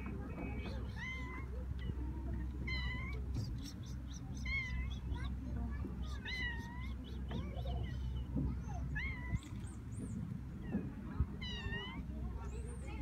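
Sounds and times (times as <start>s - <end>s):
low steady rumble: 0.0s - 13.0s
cat meowing: 6.2s - 6.9s, 8.9s - 9.6s, 11.4s - 12.0s.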